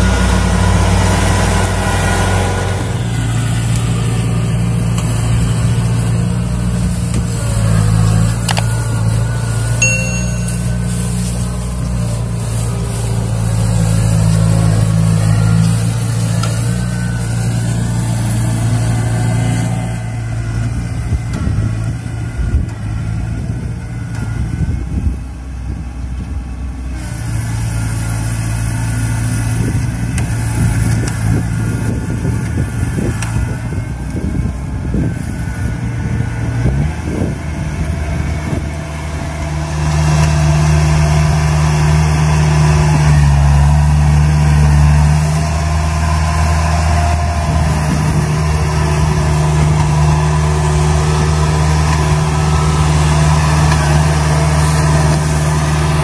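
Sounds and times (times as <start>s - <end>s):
combine harvester diesel engine: 0.0s - 56.0s.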